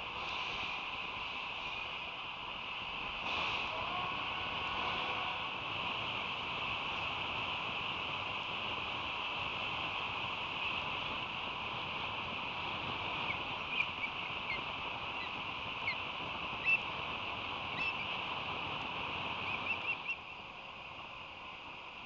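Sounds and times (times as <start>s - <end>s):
steady background hiss: 0.0s - 22.0s
bird chicks chirping: 13.2s - 16.0s, 17.8s - 18.1s, 19.4s - 20.2s.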